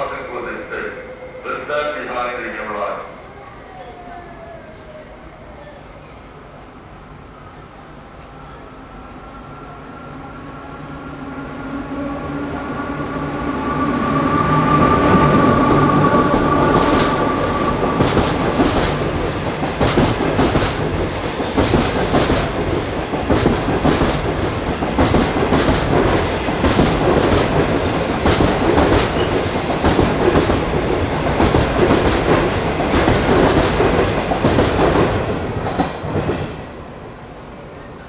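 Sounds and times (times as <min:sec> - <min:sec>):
electric locomotive whine: 0:00.0 - 0:38.0
train wheels rushing on rails: 0:07.9 - 0:37.3.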